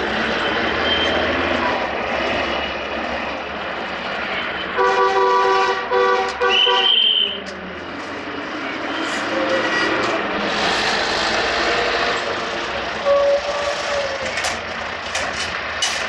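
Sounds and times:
road traffic: 0.0 - 16.0
multi-tone horn: 4.8 - 7.2.

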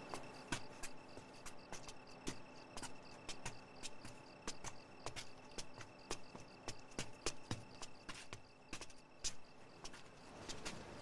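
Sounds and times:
crickets chirping: 0.0 - 11.0
footsteps on stone steps: 0.0 - 11.0.

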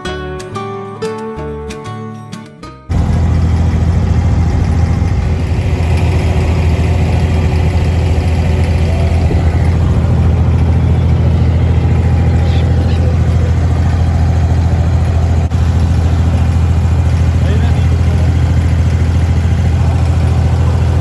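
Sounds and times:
boat diesel engine droning: 2.9 - 21.0.

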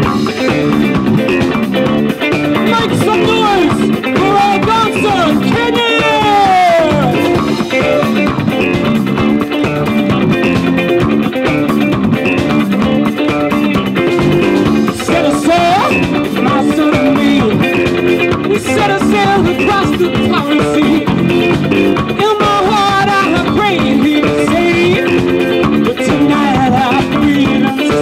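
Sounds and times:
drum kit: 0.0 - 28.0
electric bass: 0.0 - 28.0
electric guitar: 0.0 - 28.0.

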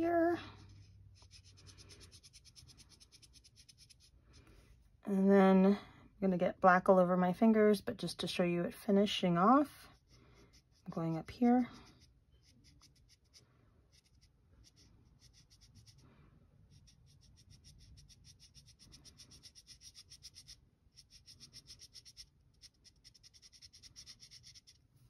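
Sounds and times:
marker scratching on wood: 0.6 - 4.2, 9.9 - 16.0, 16.7 - 24.8.

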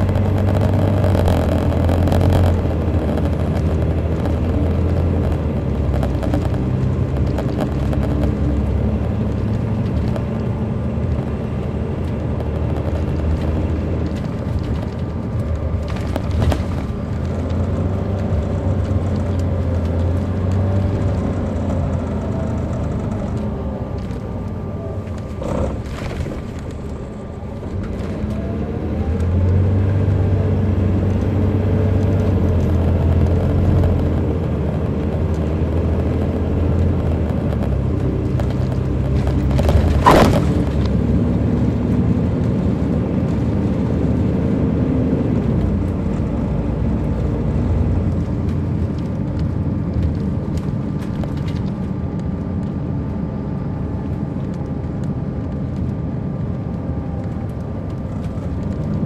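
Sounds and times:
diesel coach engine: 0.0 - 59.0
sharp bang: 40.0 - 40.7.

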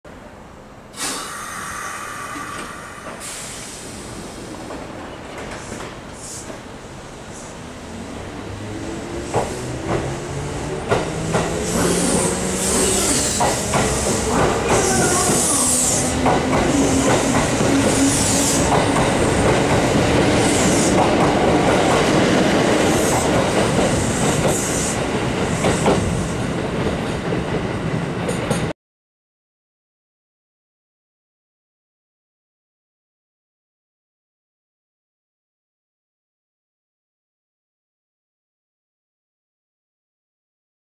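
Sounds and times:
wheels clacking over rail joints: 9.3 - 26.1
hissing squeals: 11.6 - 17.1, 17.8 - 18.7.

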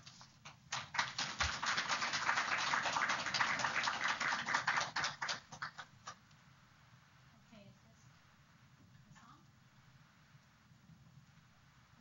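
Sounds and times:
audience applauding: 0.5 - 6.2.

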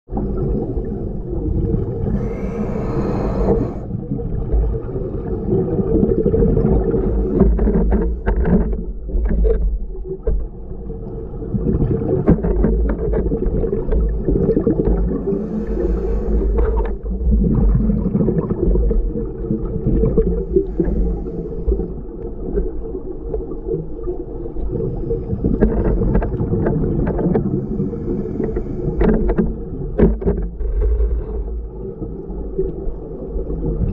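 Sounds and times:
boat motor humming: 1.9 - 4.0, 6.8 - 9.0, 15.2 - 17.2, 20.6 - 21.8.

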